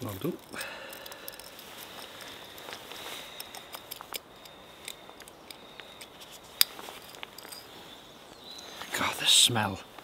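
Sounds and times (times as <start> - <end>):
coffee grinder parts clicking: 0.0 - 2.8.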